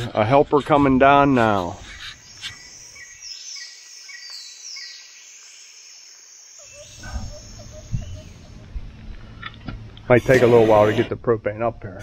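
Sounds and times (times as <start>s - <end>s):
bird chirps: 1.4s - 8.8s
buzzy insect call: 1.5s - 8.7s, 10.1s - 11.1s.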